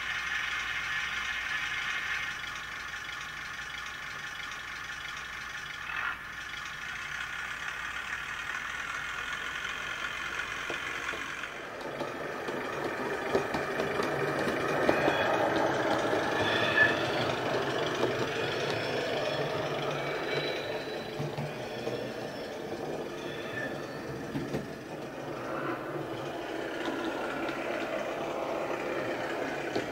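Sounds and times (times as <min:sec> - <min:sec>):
diesel engine sound from tiny speaker: 0:00.0 - 0:29.9
high flange squeals: 0:11.5 - 0:29.9.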